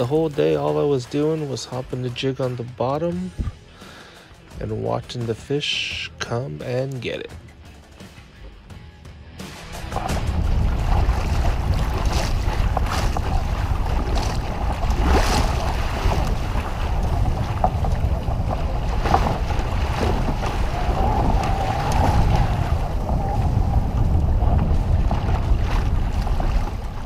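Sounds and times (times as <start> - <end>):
water splashing against kayak hull: 0.0 - 4.9, 9.5 - 27.0
wind buffeting the microphone: 9.9 - 27.0.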